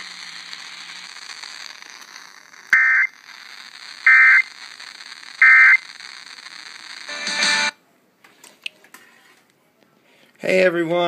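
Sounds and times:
electronic data bursts from radio: 0.0 - 7.7.

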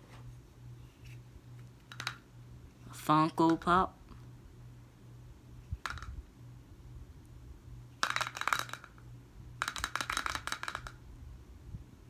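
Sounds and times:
rapid clattering clicks: 8.0 - 9.0, 9.6 - 11.0.

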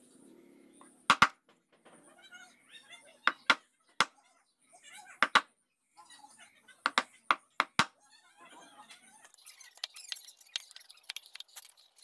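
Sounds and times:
mallet striking chisel into wood: 1.1 - 1.4.

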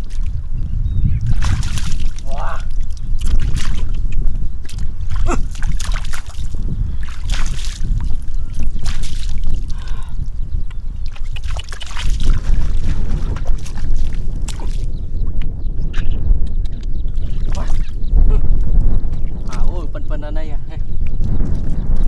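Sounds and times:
wind on microphone: 0.0 - 22.0
hands splashing in muddy water: 1.3 - 10.0, 11.0 - 14.9.

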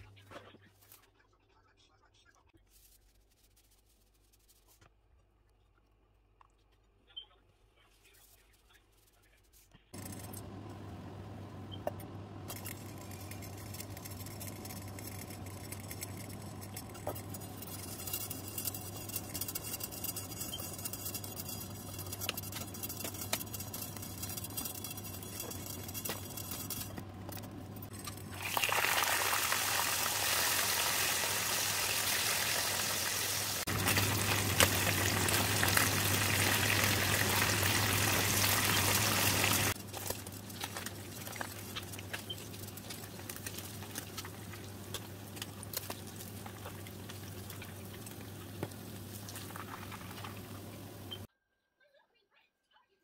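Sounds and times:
pots on a stovetop: 9.9 - 51.3
oil pouring into a pot: 28.0 - 39.8
fish frying in hot oil: 28.1 - 51.3.

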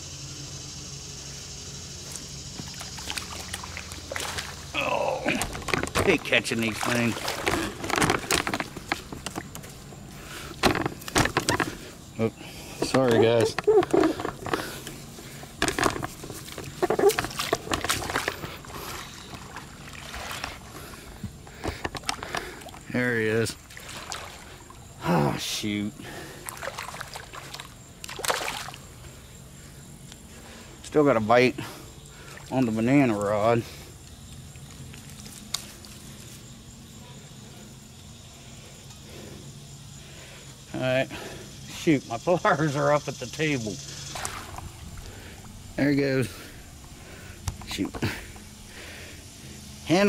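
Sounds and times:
fish splashing in water: 2.6 - 9.5, 15.7 - 20.9, 23.6 - 24.8, 26.4 - 28.9, 44.0 - 45.6.

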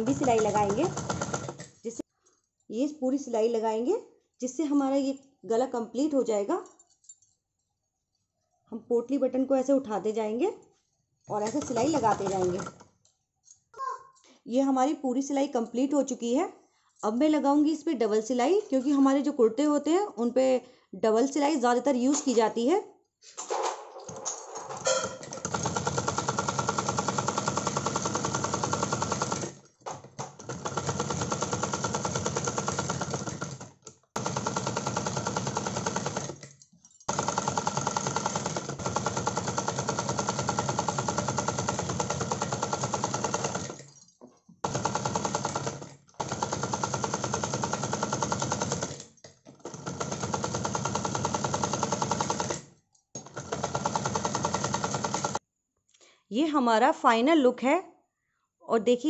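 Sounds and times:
sewing machine stitching: 0.0 - 2.0, 11.3 - 12.9, 24.1 - 44.0, 44.6 - 55.4.

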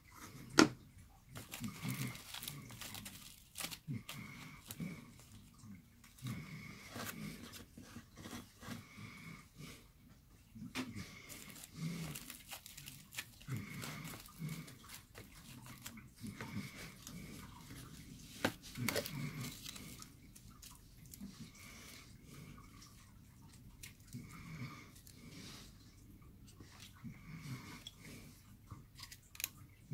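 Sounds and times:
aluminium foil crinkling: 1.3 - 5.4, 11.0 - 21.5, 29.0 - 29.6.

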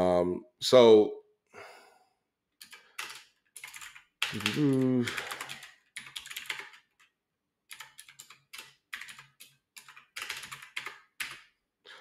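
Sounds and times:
keyboard typing: 2.6 - 11.6.

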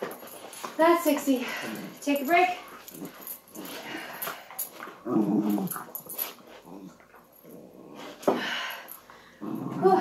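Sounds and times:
dogs growling in play: 2.6 - 8.4, 9.2 - 10.0.

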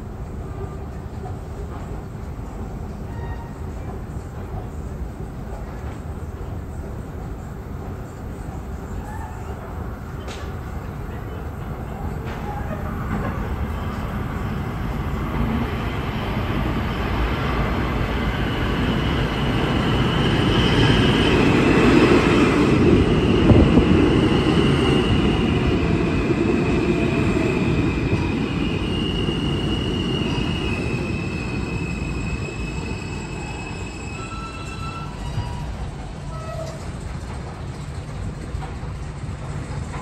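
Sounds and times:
train wheels rumbling on rail: 0.0 - 40.0
high-pitched wheel squeal: 28.4 - 36.8.

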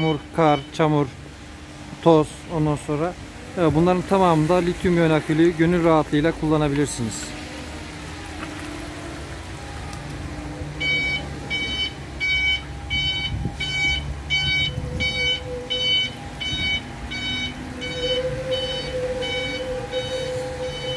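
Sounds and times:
forklift reversing alarm beeping: 0.0 - 1.0, 10.8 - 20.9.

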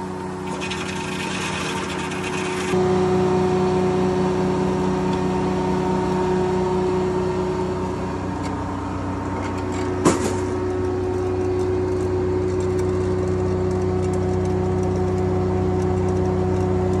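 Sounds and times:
sawmill machinery droning: 0.0 - 17.0.

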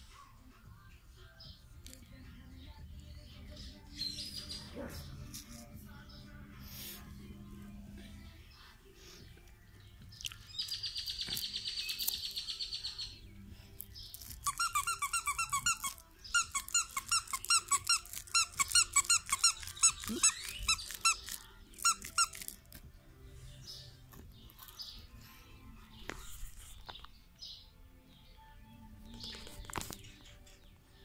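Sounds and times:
squeaky dog toy squeaking: 14.3 - 22.6.

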